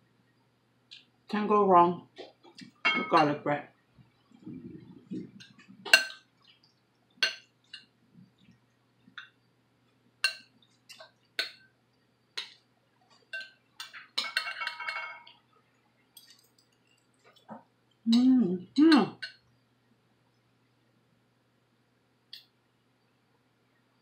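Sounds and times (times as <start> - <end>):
fork clinking against glass bowl: 5.4 - 6.3, 7.2 - 7.9, 10.2 - 11.7, 13.3 - 15.3.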